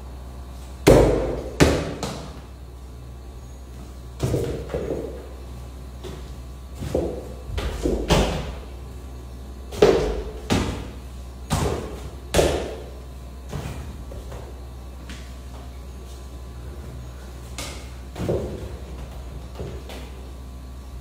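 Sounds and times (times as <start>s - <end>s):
football thudding off walls and floor: 0.8s - 2.4s, 4.1s - 5.3s, 6.0s - 8.8s, 9.7s - 15.2s, 17.5s - 20.2s.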